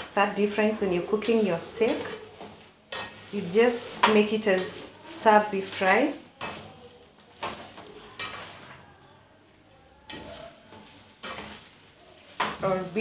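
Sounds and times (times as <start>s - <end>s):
meat and peppers frying: 0.0s - 13.0s
spatula scraping food in pan: 0.5s - 13.0s.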